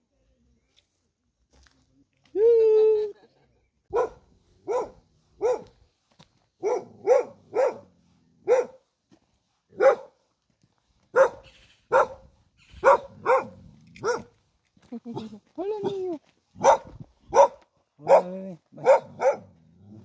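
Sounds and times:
dog barking: 3.9 - 5.8, 6.6 - 8.8, 9.8 - 10.2, 11.1 - 14.3, 16.6 - 19.6.

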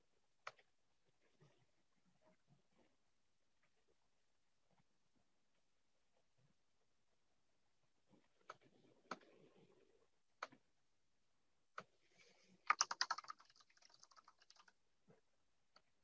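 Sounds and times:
typing on computer keyboard: 12.7 - 14.7.

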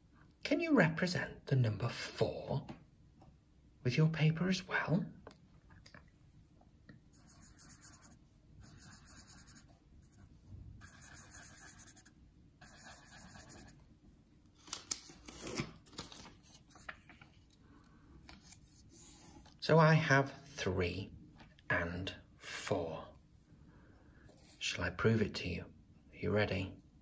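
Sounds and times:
marker pen scratching on paper: 7.1 - 13.8.

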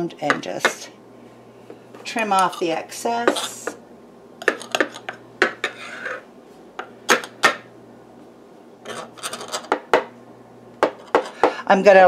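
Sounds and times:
knife scraping plate edge: 4.5 - 6.3, 8.8 - 9.7.

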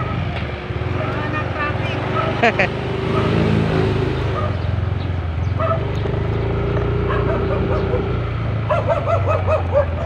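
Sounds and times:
motorcycle engine running: 0.0 - 10.0
dog barking: 2.1 - 2.4, 3.1 - 3.4, 4.3 - 4.7, 5.6 - 5.9, 7.0 - 10.0.

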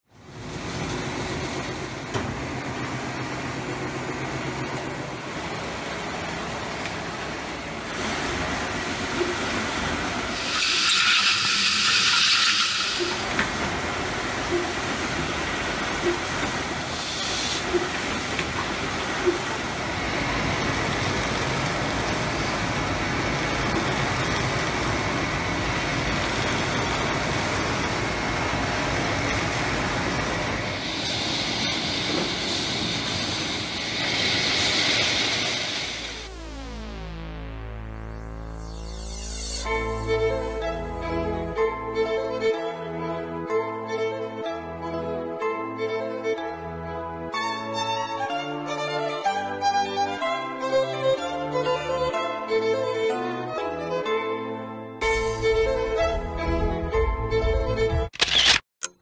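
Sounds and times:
machinery running: 0.1 - 44.6, 55.0 - 58.6
loud hiss: 10.3 - 13.3, 16.8 - 17.7, 30.8 - 36.3.

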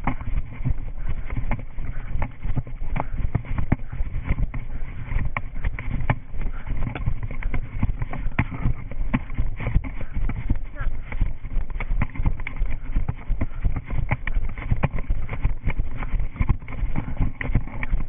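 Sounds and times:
running footsteps: 0.0 - 18.0
wind rumble on microphone: 0.0 - 18.0.

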